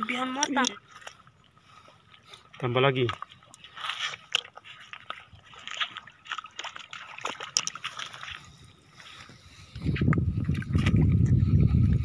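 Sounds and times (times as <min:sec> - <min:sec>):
seawater sloshing and crackling: 0:00.0 - 0:12.0.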